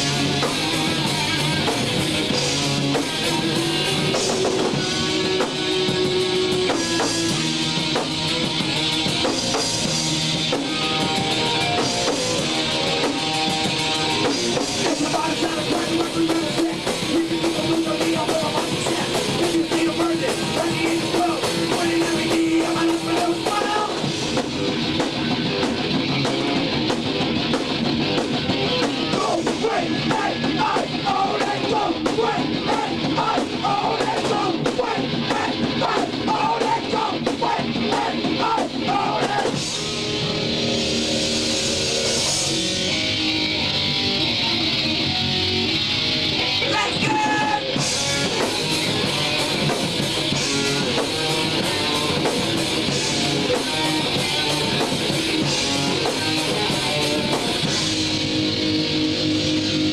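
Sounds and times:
distorted electric guitars: 0:00.0 - 0:59.9
fast drum kit: 0:00.0 - 0:59.9
person singing into a microphone: 0:14.8 - 0:24.0, 0:29.1 - 0:39.6, 0:46.6 - 0:47.8.

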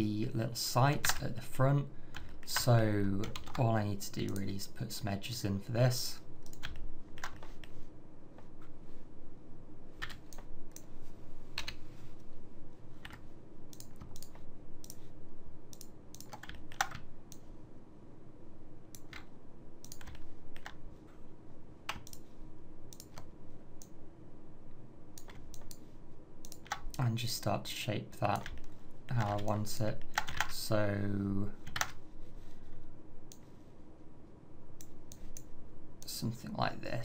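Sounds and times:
faint steady hum: 0:00.0 - 0:37.0
keyboard and mouse clicking: 0:02.1 - 0:03.6, 0:06.4 - 0:07.8, 0:10.0 - 0:10.9, 0:11.6 - 0:11.8, 0:13.0 - 0:15.0, 0:15.7 - 0:17.5, 0:18.9 - 0:20.8, 0:21.9 - 0:22.3, 0:22.9 - 0:23.9, 0:25.2 - 0:27.0, 0:28.3 - 0:30.5, 0:31.6 - 0:32.0.

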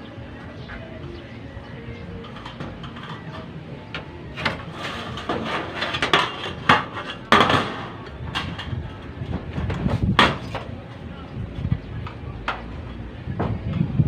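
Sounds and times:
knocks and clanks on metal: 0:02.2 - 0:10.8
rasping scrape: 0:04.4 - 0:07.4.

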